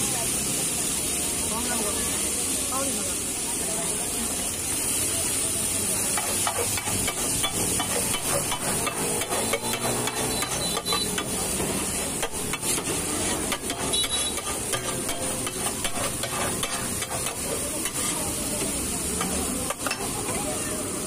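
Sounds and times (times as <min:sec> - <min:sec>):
food sizzling: 0:00.0 - 0:21.0
metal utensil scraping on griddle: 0:06.0 - 0:20.4.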